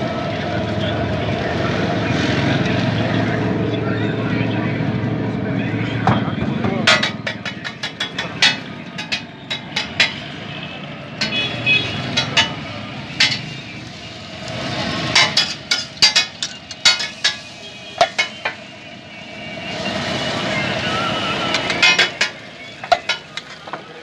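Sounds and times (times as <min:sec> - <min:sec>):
food sizzling on griddle: 0:12.6 - 0:24.0
metal spatula scraping griddle: 0:14.9 - 0:18.6.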